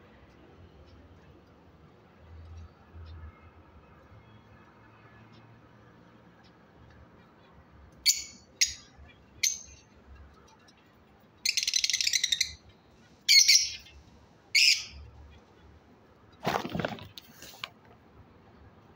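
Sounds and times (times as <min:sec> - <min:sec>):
lovebirds chirping and chattering: 0:08.0 - 0:15.5.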